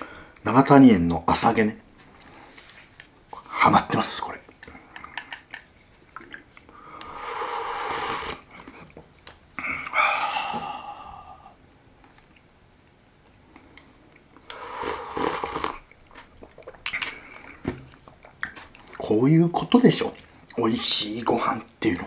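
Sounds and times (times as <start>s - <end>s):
person slurping soup: 6.3s - 8.9s, 14.4s - 17.6s
breathy exhale: 9.6s - 11.6s.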